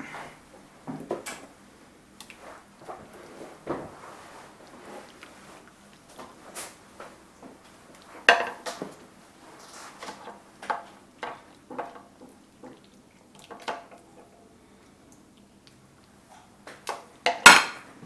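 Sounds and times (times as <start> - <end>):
utensils clinking on crockery: 8.3 - 8.8.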